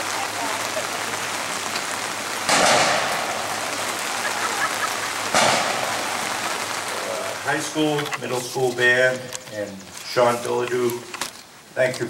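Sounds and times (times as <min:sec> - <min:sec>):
heavy rain falling: 0:00.0 - 0:12.0
sudden loud bursts: 0:02.4 - 0:07.8.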